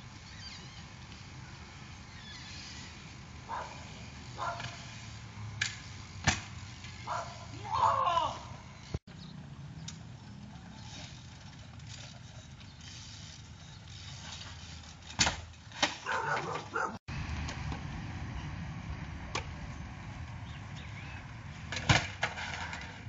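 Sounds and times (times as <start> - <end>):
outdoor background noise: 0.0 - 23.0
bike knocking on concrete: 14.2 - 16.9.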